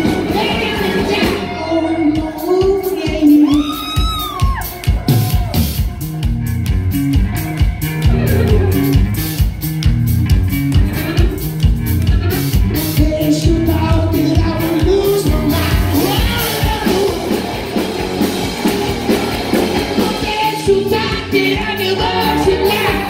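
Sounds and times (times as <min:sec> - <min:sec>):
person singing lead vocals: 0:00.0 - 0:04.6, 0:12.8 - 0:17.8, 0:19.6 - 0:23.0
bass guitar: 0:00.0 - 0:23.0
drum kit: 0:00.0 - 0:23.0
electric guitar: 0:00.0 - 0:23.0.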